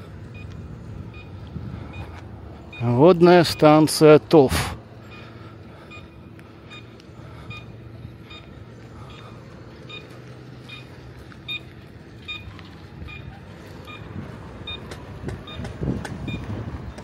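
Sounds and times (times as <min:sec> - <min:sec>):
engine humming: 0:00.0 - 0:17.0
reversing alarm beeps: 0:00.3 - 0:16.5.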